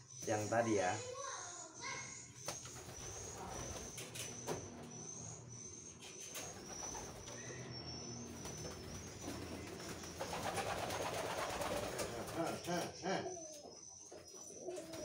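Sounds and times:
pigeons cooing: 2.6 - 5.5, 6.4 - 15.0.

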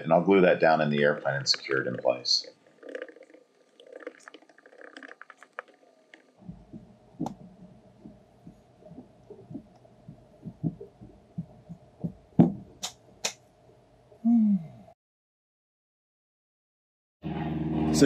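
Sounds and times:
steady hum: 0.0 - 4.4, 5.0 - 14.7
hands thumping on carpet and wood: 11.4 - 12.7.

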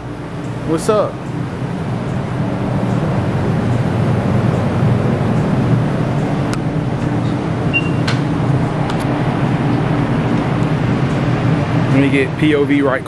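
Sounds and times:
low rumbling background noise: 0.0 - 13.0
short high beep: 7.7 - 8.1.

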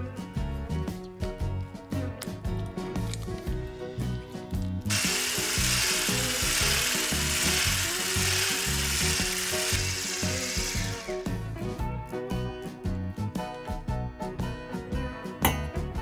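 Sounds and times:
electric hand mixer whisking: 4.9 - 11.4.

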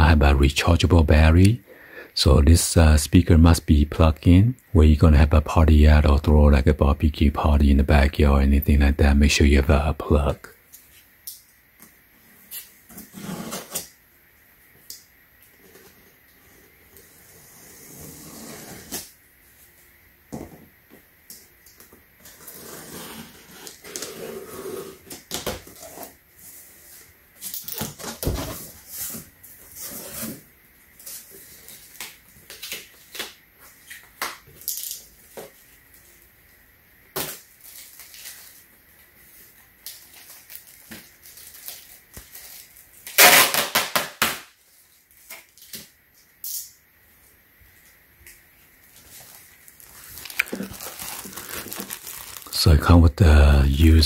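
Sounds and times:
loud cardboard scrape: 13.0 - 13.8, 17.2 - 19.1, 22.4 - 25.1
cardboard and foam rustling: 48.9 - 52.6.

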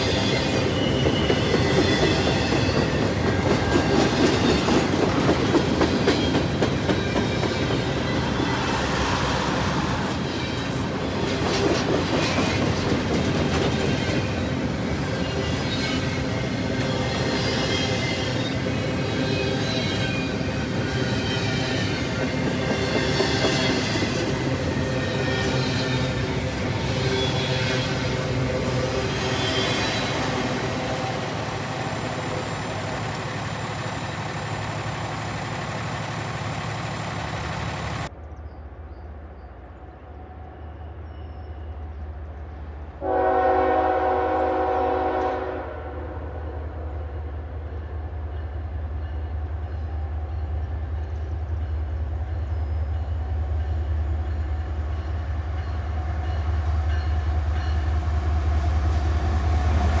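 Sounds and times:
empty rail cars rolling past: 0.0 - 60.0
locomotive engine rumble: 23.7 - 41.0
locomotive horn blast: 43.0 - 46.7.

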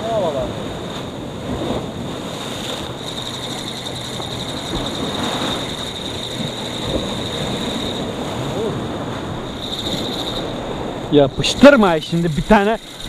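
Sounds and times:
waves breaking on rocky shore: 0.0 - 13.0
wind on microphone: 0.0 - 13.0
thin high whine: 2.8 - 8.7, 9.4 - 13.0.

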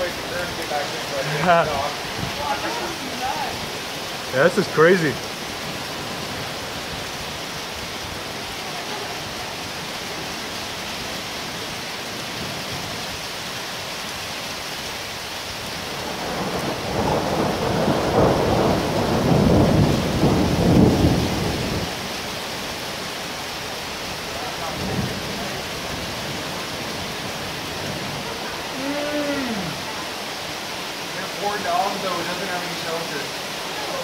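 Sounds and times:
heavy rain: 0.0 - 34.0
thunder rolling: 16.0 - 21.9.

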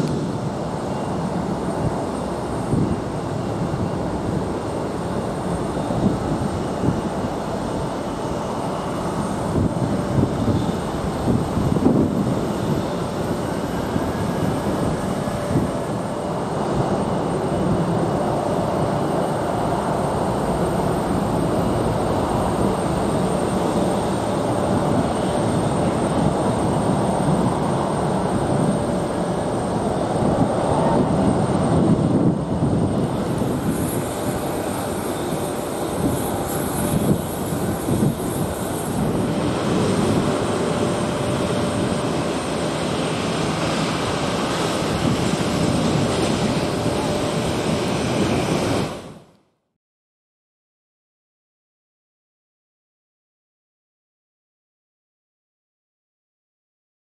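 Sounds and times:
jet engines running steadily: 0.0 - 49.7.

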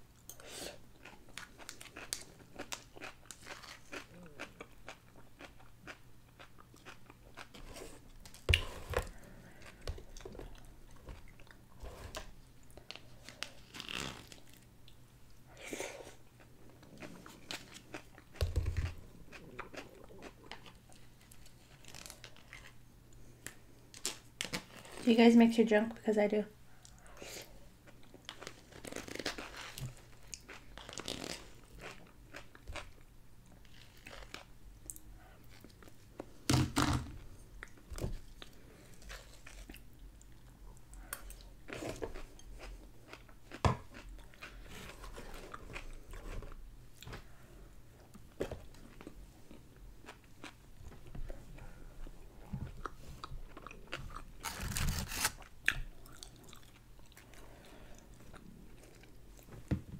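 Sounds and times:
chewing and crunchy bites: 0.9 - 14.7, 16.4 - 22.8, 27.8 - 36.0, 37.6 - 46.3, 52.4 - 59.5.

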